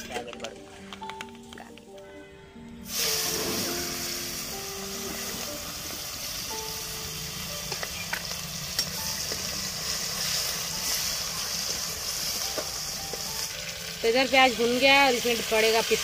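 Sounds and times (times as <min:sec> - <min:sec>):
onions sizzling in oil: 0:02.8 - 0:16.0.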